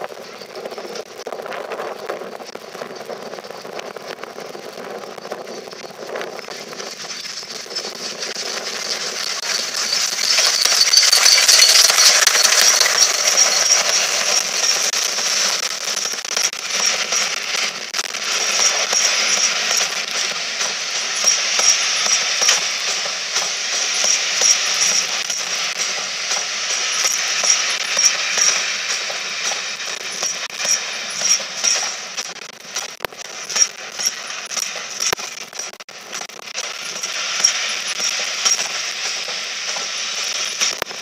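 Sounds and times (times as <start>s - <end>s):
train wheels clattering on rails: 5.8s - 41.0s
high wheel squeal: 8.8s - 14.9s.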